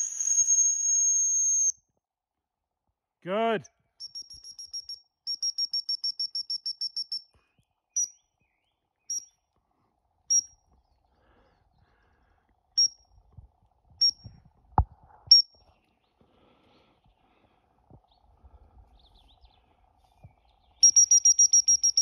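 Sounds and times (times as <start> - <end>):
dog whistle toots: 0.0 - 1.7, 20.8 - 22.0.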